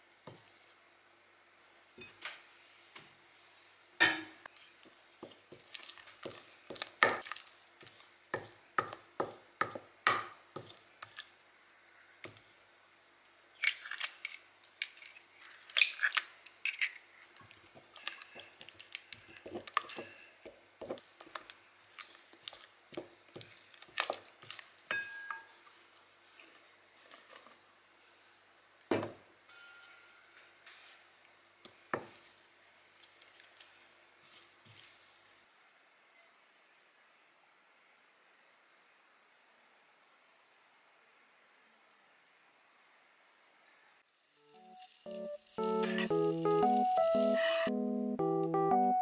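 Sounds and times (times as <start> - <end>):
spatula scraping glass bowl: 47.1 - 47.7.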